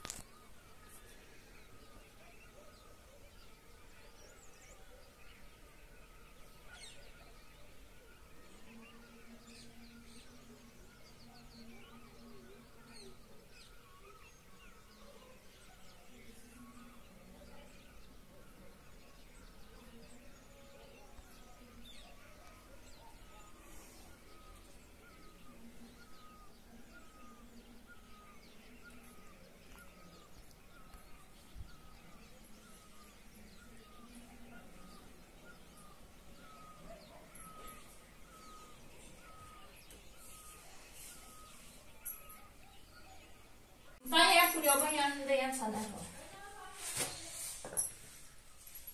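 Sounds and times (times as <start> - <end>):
small birds chirping: 0.0 - 48.9
higher bird chirps: 21.8 - 45.2.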